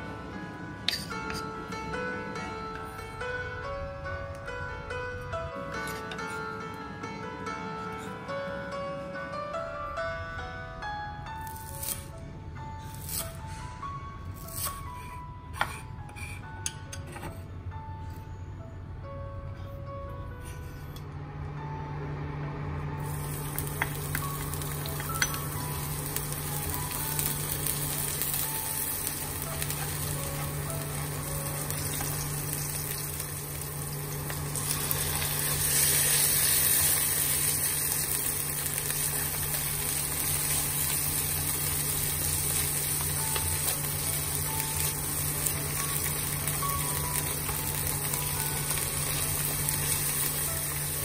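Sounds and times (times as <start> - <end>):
oil sizzling in a wok: 23.0 - 51.0.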